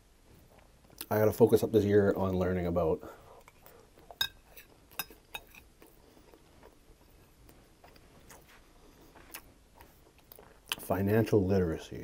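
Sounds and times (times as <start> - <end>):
chewing food: 3.4 - 10.9.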